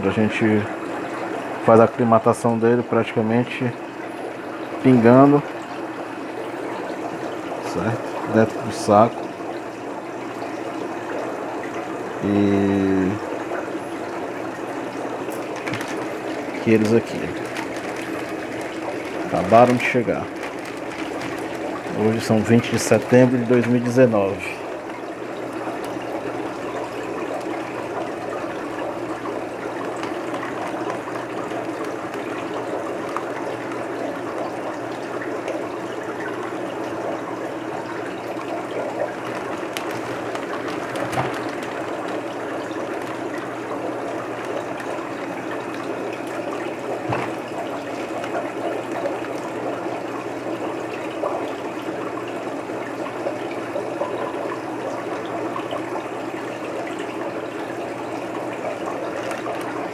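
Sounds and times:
running water in fish tank: 0.0s - 59.9s
hand splashing water: 37.7s - 49.8s.

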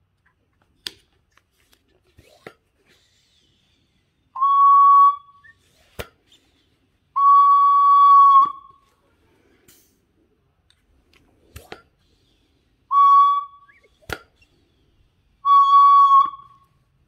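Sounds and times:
pressure valve whistling: 4.3s - 5.8s, 7.2s - 8.8s, 12.9s - 14.5s, 15.4s - 16.8s.

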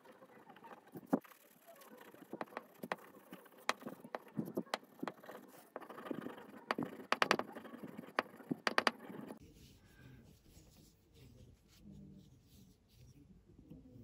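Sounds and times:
compound scraping on strop: 2.0s - 9.4s.

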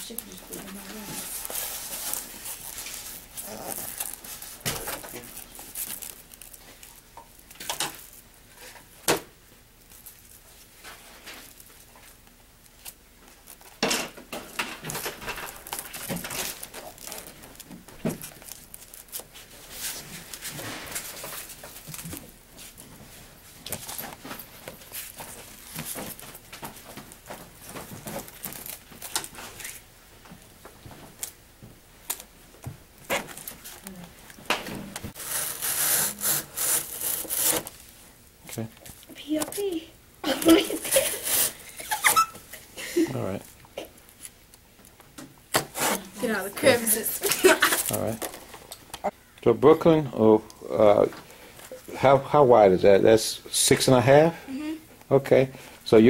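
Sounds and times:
crinkly scratchy handling noise: 0.0s - 9.0s, 9.8s - 13.9s, 14.5s - 31.4s, 32.0s - 42.2s, 43.3s - 49.1s
tape pulled off roll: 34.5s - 37.8s.

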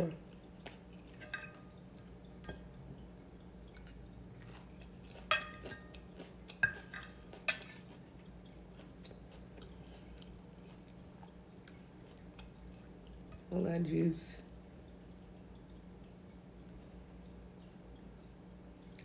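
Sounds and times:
fork clinking on plate: 1.2s - 1.7s, 5.3s - 6.0s, 6.6s - 7.9s.

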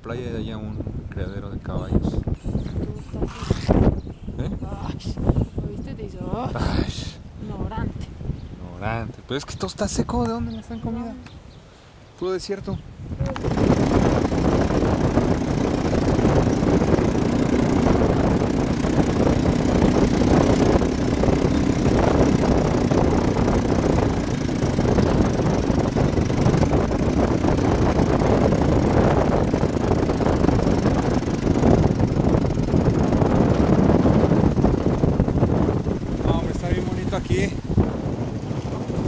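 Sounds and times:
continuous rushing noise: 13.2s - 39.0s
vehicle engine running: 13.3s - 39.0s.

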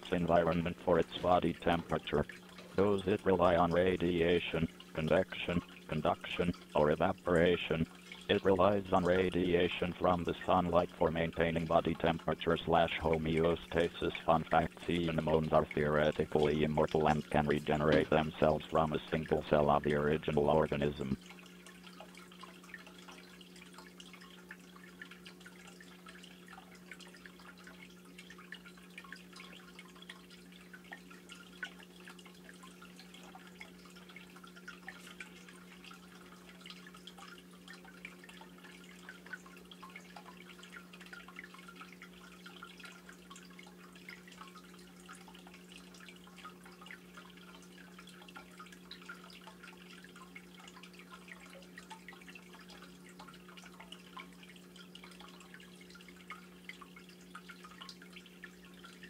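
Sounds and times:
aquarium pump hum: 0.0s - 59.0s
water dripping: 0.0s - 59.0s.

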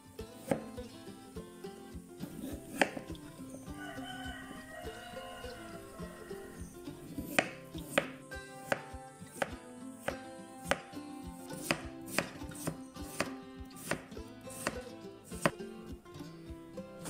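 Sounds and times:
knife slicing potatoes on board: 0.4s - 0.8s, 2.2s - 3.3s, 7.0s - 15.6s.

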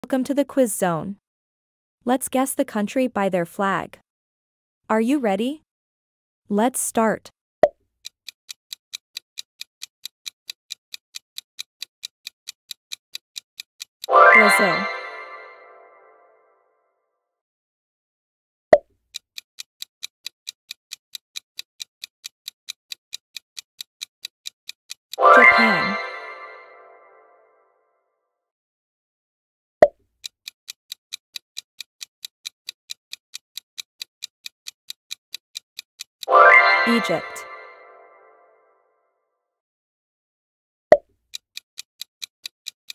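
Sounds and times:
clock ticking: 8.0s - 15.4s, 19.1s - 26.7s, 30.2s - 37.9s, 41.3s - 42.9s.

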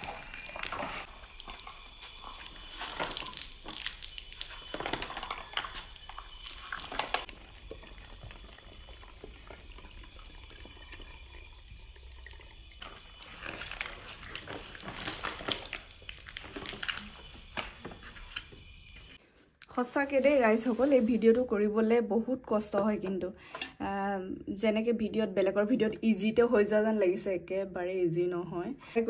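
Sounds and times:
water splashing: 0.0s - 17.8s.

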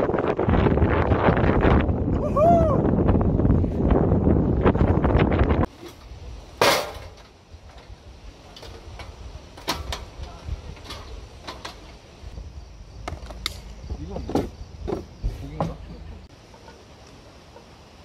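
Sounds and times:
wind buffeting microphone: 0.0s - 6.6s.

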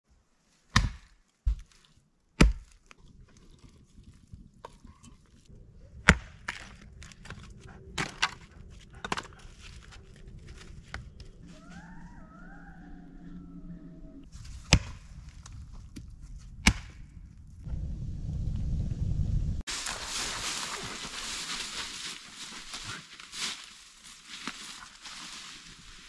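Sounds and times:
sharp knocks and cracks: 0.7s - 1.8s, 2.4s - 3.0s, 14.6s - 17.0s.

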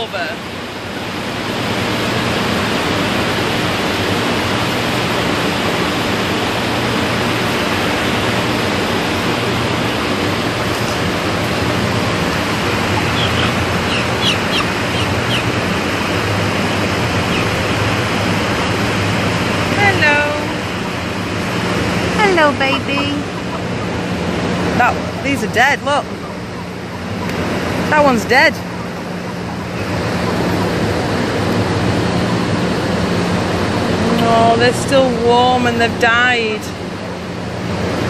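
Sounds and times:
ventilation fans rushing: 0.0s - 38.0s
chickens chirping: 10.2s - 32.5s.

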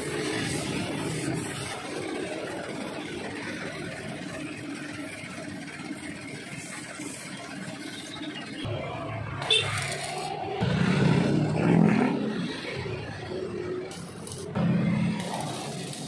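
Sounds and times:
paint spray gun hissing: 0.0s - 8.6s, 13.9s - 16.0s.

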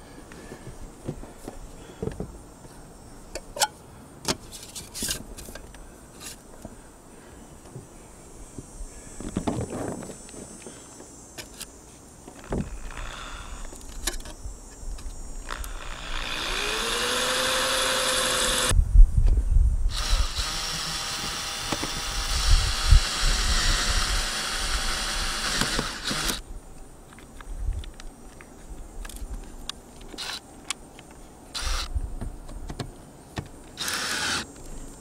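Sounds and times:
cordless drill running into pipe: 15.4s - 18.7s, 19.9s - 26.4s, 31.6s - 31.9s, 33.8s - 34.5s
electric drill boring into metal: 15.4s - 18.7s, 19.9s - 26.4s, 31.6s - 31.9s, 33.8s - 34.5s.

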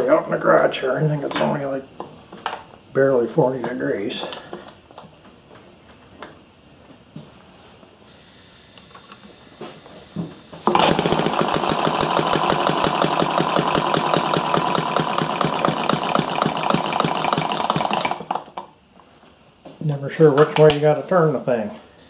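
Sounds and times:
model engine running: 10.7s - 18.5s.

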